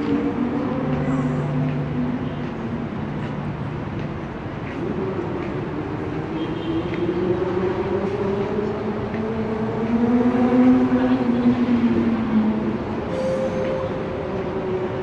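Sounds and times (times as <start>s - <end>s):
city noise: 0.0s - 15.0s
vehicle engine droning: 4.6s - 15.0s.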